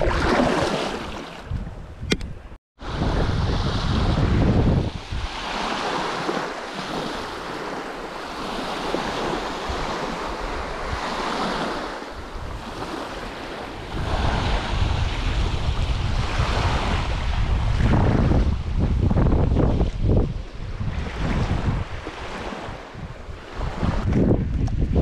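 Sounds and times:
wind rumble on microphone: 0:00.0 - 0:25.0
small waves on sandy beach: 0:02.8 - 0:24.9.

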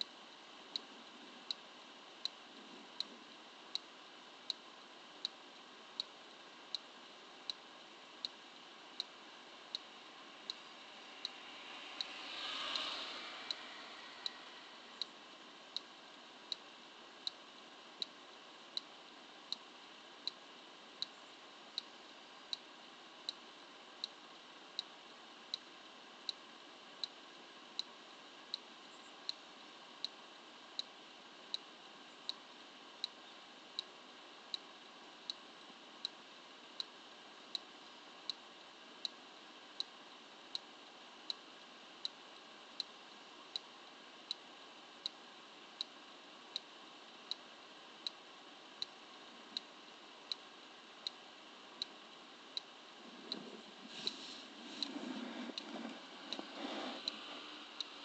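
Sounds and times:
faint hiss: 0:00.0 - 0:58.0
turn-signal flasher ticking: 0:09.0 - 0:20.4.

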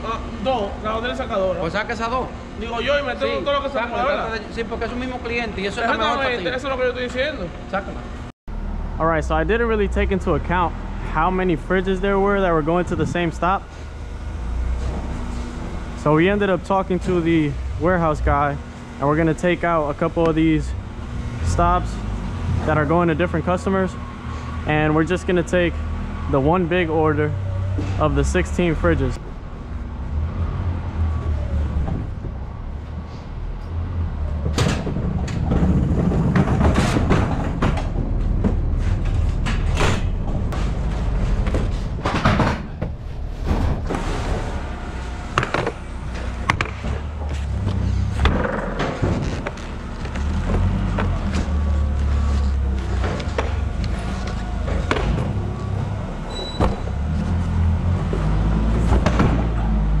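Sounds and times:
boxed fridges knocking and banging: 0:34.4 - 0:44.5, 0:58.1 - 0:59.6.

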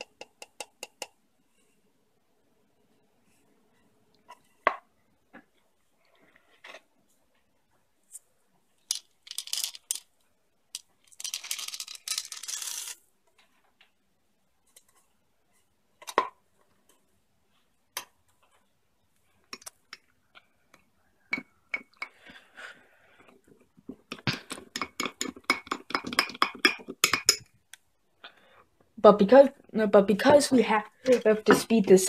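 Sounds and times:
chocolate chips pouring into mug: 0:08.9 - 0:10.1, 0:11.0 - 0:13.0
spoon stirring in mug: 0:24.1 - 0:27.5.

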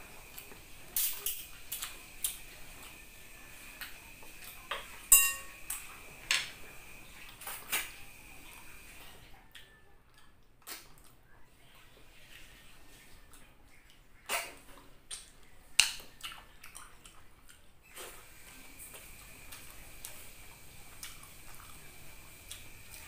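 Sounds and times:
shell clinking on ceramic plate: 0:05.1 - 0:05.6.

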